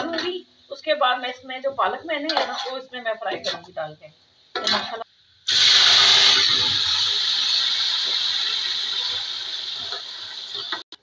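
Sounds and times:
food sizzling in hot oil: 0:05.4 - 0:11.0.

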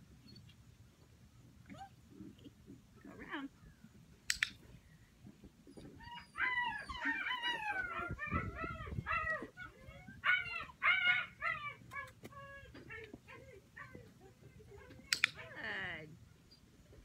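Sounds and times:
puppy whining: 0:01.6 - 0:03.6, 0:05.6 - 0:15.6.

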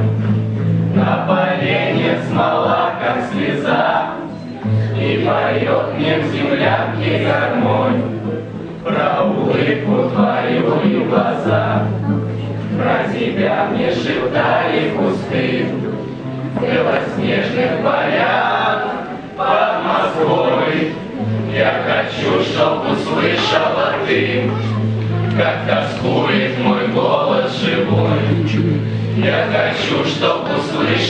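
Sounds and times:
acoustic guitar: 0:00.0 - 0:31.0
group of young voices singing: 0:00.9 - 0:31.0.

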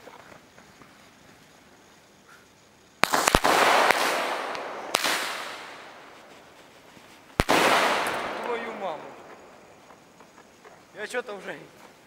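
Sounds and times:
firecrackers banging: 0:03.0 - 0:11.0.

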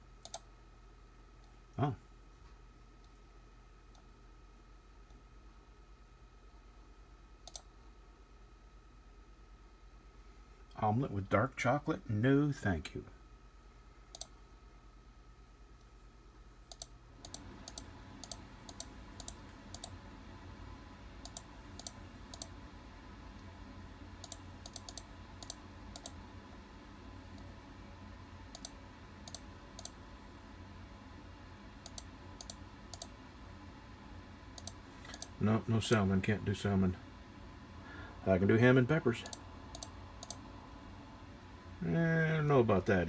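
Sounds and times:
faint steady hum: 0:00.0 - 0:43.0
computer mouse clicking: 0:00.2 - 0:00.5, 0:07.4 - 0:07.7, 0:14.1 - 0:14.4, 0:16.7 - 0:20.0, 0:21.2 - 0:22.6, 0:24.2 - 0:26.2, 0:28.5 - 0:30.0, 0:31.8 - 0:33.1, 0:34.6 - 0:36.0, 0:39.2 - 0:40.4.

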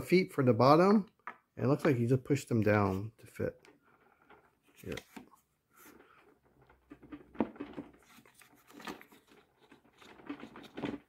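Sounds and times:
light handling noise: 0:03.6 - 0:11.0.

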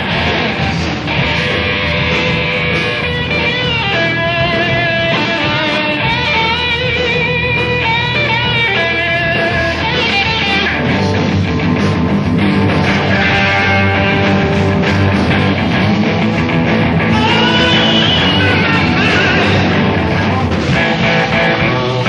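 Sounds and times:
electric guitar lead lines: 0:00.0 - 0:22.0
live rock band playing: 0:00.0 - 0:22.0.

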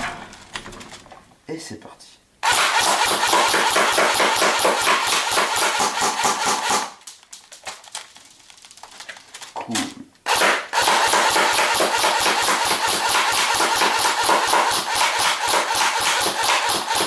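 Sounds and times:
airsoft gun rapid shots: 0:02.4 - 0:07.0, 0:10.2 - 0:17.0.

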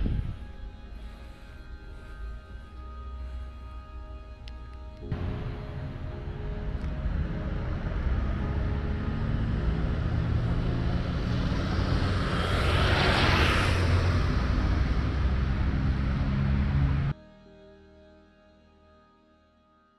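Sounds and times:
vehicle passing by: 0:05.1 - 0:17.1.

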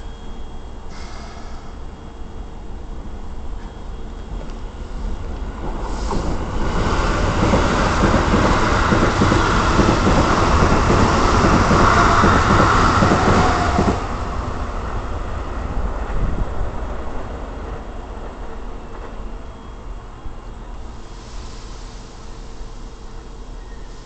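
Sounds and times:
train wheels rushing on rail: 0:00.8 - 0:24.0.

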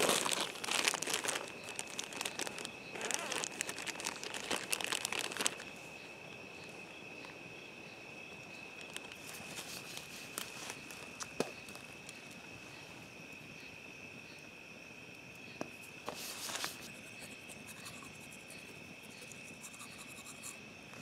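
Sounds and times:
charcoal crushing scrape: 0:00.0 - 0:01.5
night insects trilling: 0:00.0 - 0:21.0.

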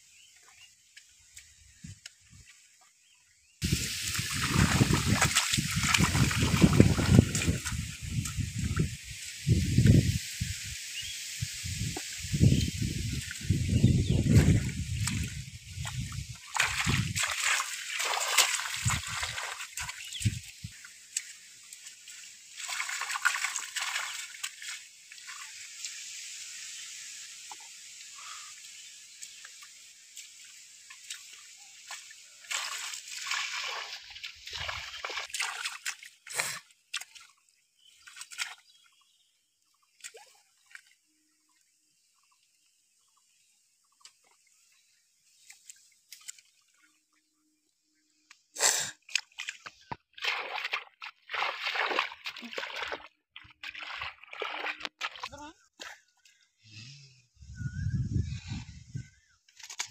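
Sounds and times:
feet and hands splashing in water: 0:03.6 - 0:10.0, 0:12.8 - 0:26.0, 0:27.5 - 0:39.0, 0:39.7 - 0:41.1, 0:45.4 - 0:47.2, 0:48.6 - 0:56.5, 0:59.5 - 0:59.9
water dripping: 0:03.7 - 0:10.1, 0:11.8 - 0:26.6, 0:27.2 - 0:38.6, 0:49.1 - 0:56.3.

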